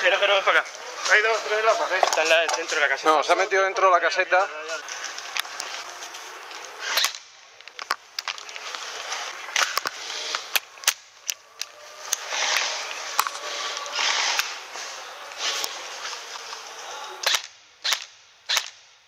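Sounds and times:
background noise: 0.0 - 19.0
airsoft gun shots: 17.2 - 18.8.

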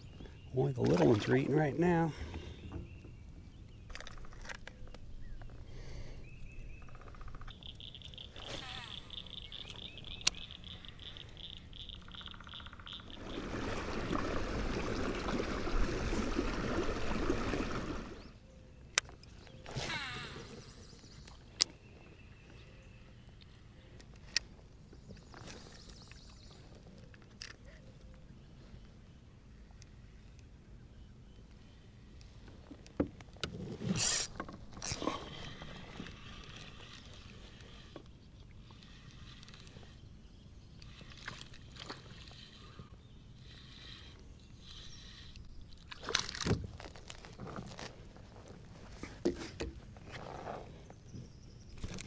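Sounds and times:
water sloshing against kayak: 13.0 - 18.4, 32.3 - 40.0.

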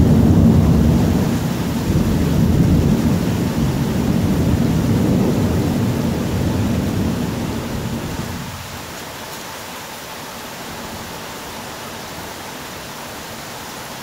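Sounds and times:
thunder rumbling: 0.0 - 8.9
heavy rain hiss: 0.0 - 14.0.

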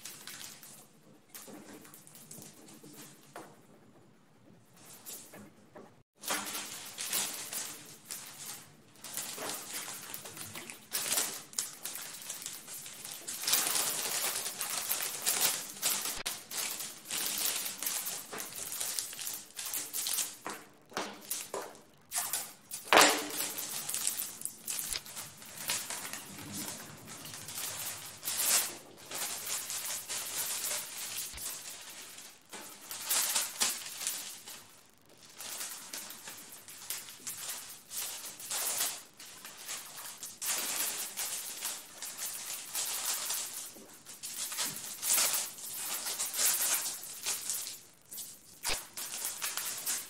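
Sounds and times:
newspaper crinkling and rustling: 6.2 - 20.4, 22.2 - 50.0.

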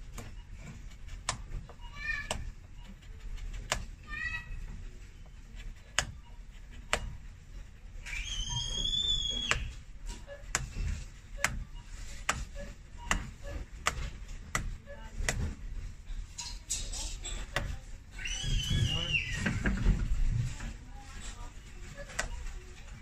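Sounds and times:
nippers snipping stitching: 0.1 - 4.1, 4.9 - 15.6
high squeak: 8.0 - 10.5, 18.1 - 19.6.

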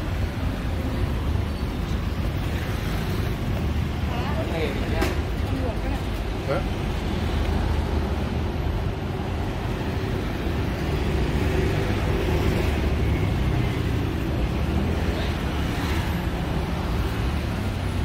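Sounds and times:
vehicle engines passing: 0.0 - 18.0.

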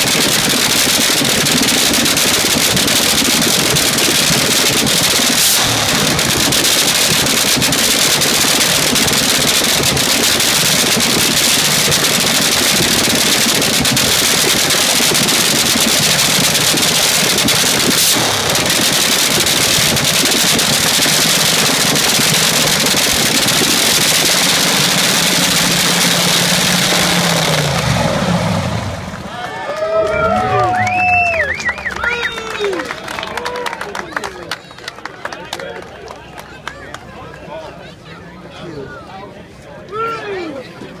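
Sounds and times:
dragster engine cackling at idle: 0.0 - 29.4.

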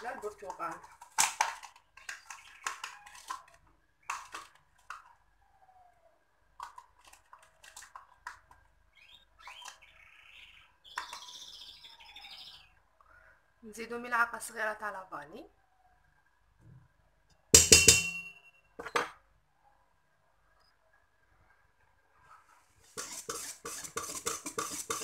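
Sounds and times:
citrus peel being grated: 22.9 - 25.0.

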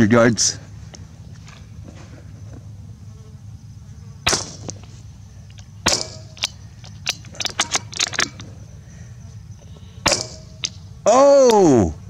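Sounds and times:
rifle shots: 4.3 - 4.7, 10.1 - 10.4
faint metallic clicks: 4.6 - 8.5.

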